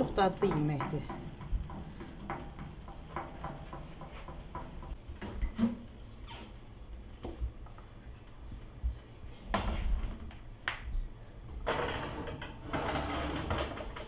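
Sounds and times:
oven door and baking tray clatter: 11.6 - 14.0.

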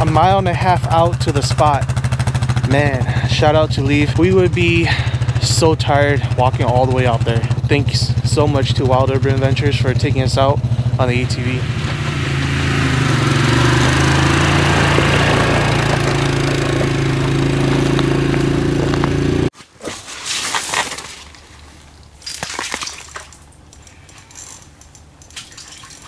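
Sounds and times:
atv engine running: 0.0 - 19.5
clicks and rustles: 20.0 - 26.0.

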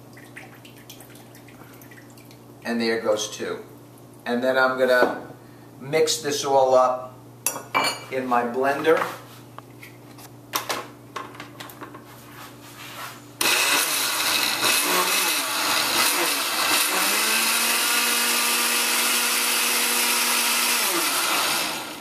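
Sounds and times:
blender motor running: 13.4 - 22.0.

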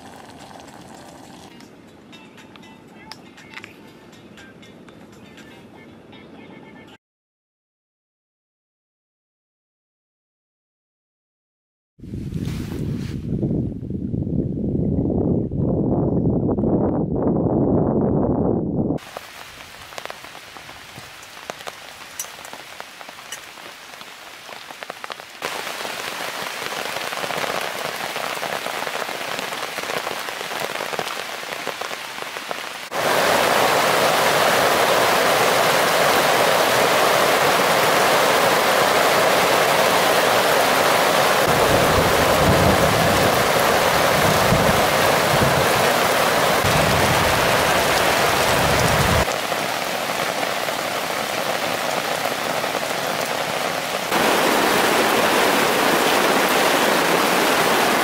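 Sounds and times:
rain falling on woods: 0.0 - 1.5, 19.0 - 58.0.

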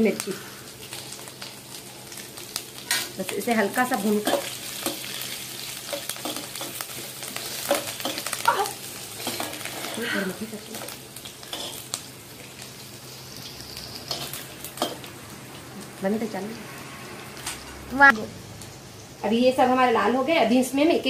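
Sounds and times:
spices sizzling in hot oil: 0.0 - 21.0
metal spoon scraping a pan: 4.1 - 6.8, 9.2 - 10.0, 11.4 - 11.8.

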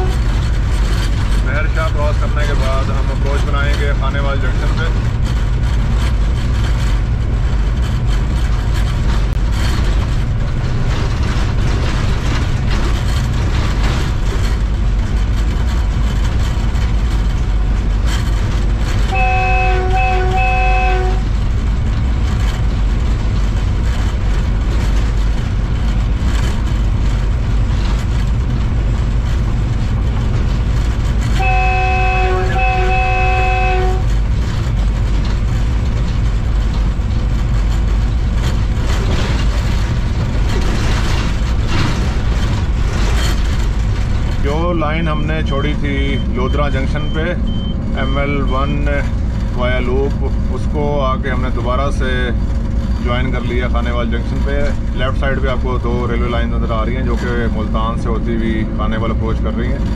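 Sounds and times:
train horn toots: 0.0 - 0.3, 19.1 - 21.3, 31.3 - 34.2
train rumbling at speed: 0.0 - 59.9.

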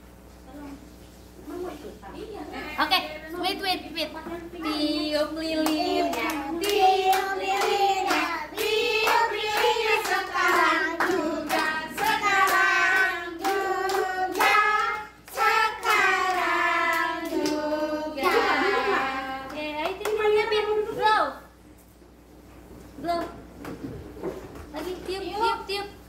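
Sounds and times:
group singing: 4.8 - 19.8
hand clapping: 5.6 - 17.6.

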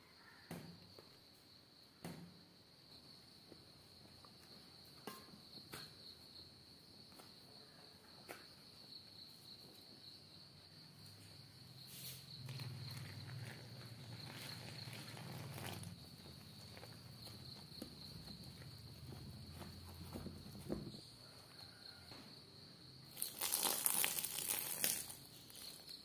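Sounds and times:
soft rustle: 11.8 - 21.7.

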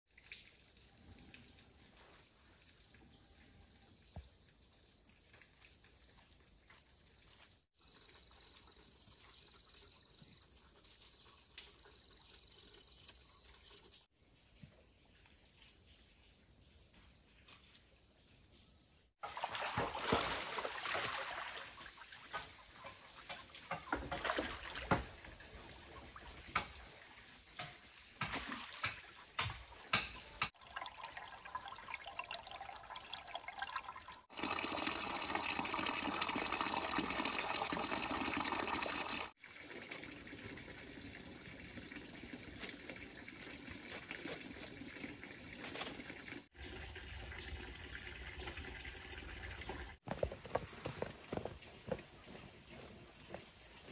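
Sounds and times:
water trickling: 30.5 - 50.1.

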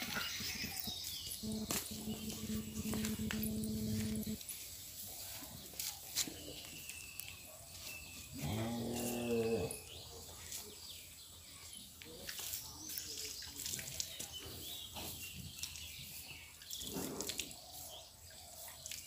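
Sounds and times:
cow mooing: 8.4 - 9.8.

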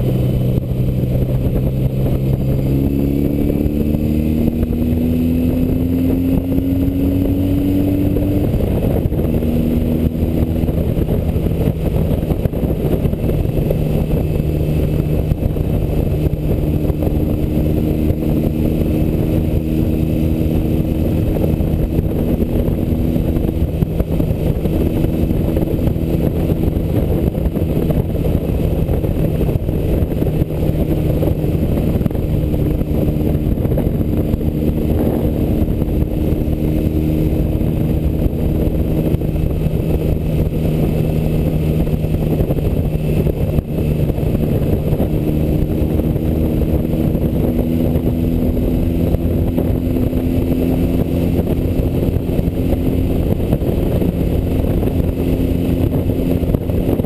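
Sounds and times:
motorcycle engine cruising: 0.0 - 57.0
wind and road rush: 0.0 - 57.0.

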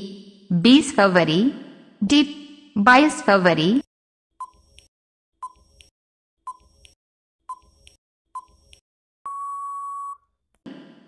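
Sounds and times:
long steady beep: 9.3 - 10.2.

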